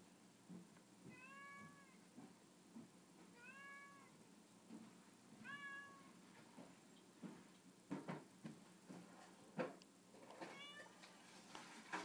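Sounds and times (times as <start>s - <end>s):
cat meowing faintly: 1.1s - 2.0s, 3.4s - 4.2s, 5.4s - 6.2s, 10.4s - 11.0s.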